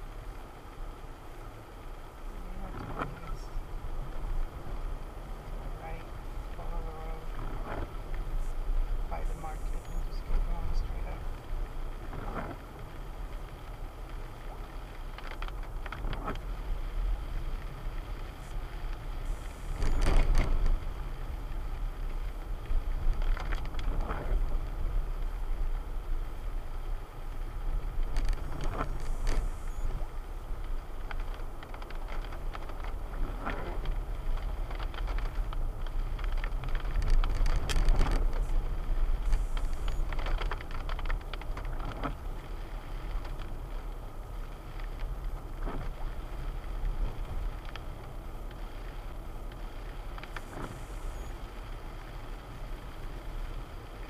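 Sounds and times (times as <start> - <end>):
vehicle driving rumble: 0.0 - 54.0.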